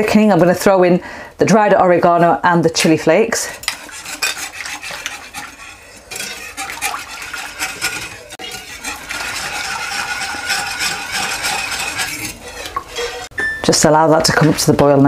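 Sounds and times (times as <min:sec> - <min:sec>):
utensil scraping and clinking pan: 0:02.8 - 0:15.0
sauce coming to the boil: 0:03.5 - 0:13.3.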